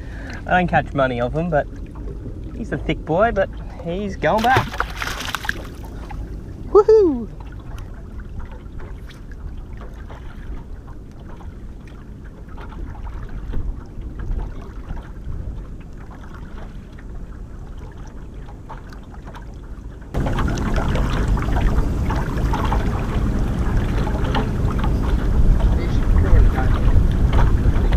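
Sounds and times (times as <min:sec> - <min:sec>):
choppy water against boat: 0:00.0 - 0:27.9
wind on microphone: 0:20.2 - 0:27.9.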